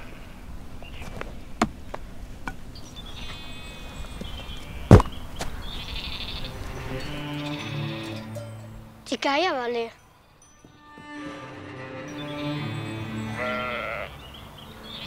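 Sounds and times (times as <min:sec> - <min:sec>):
sheep bleating: 0:05.8 - 0:08.3, 0:12.9 - 0:14.3.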